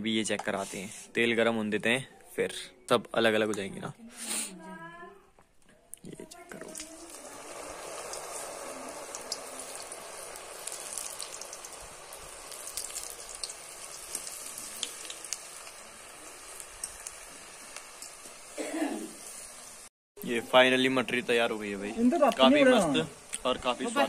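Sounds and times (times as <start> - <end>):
crackers deep-frying in oil: 6.0 - 24.0
oil crackling and popping: 6.5 - 24.0.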